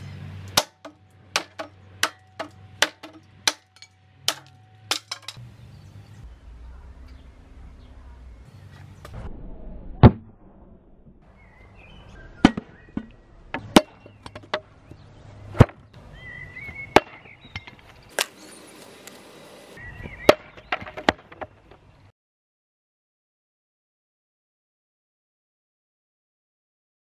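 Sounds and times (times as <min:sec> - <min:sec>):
hatchet striking wood: 0:00.5 - 0:05.4.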